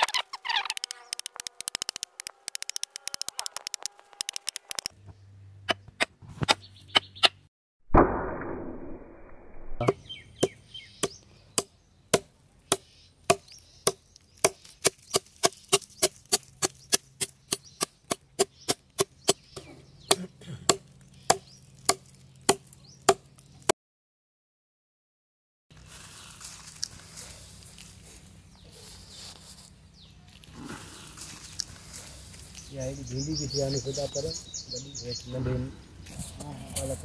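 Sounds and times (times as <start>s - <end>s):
fast run of clicks: 0.0s - 5.0s.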